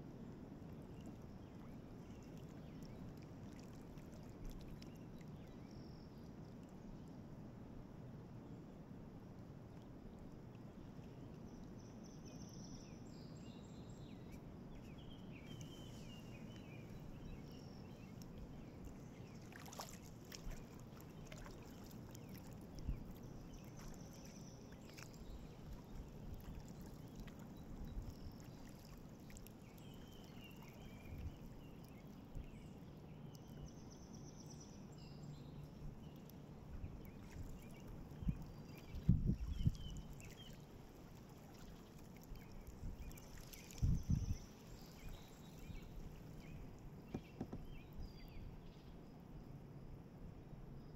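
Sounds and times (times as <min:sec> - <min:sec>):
paddle dipping in water: 0:00.6 - 0:06.8, 0:14.0 - 0:32.7, 0:35.6 - 0:48.5
water splashing and dripping: 0:18.0 - 0:32.0, 0:37.1 - 0:44.2.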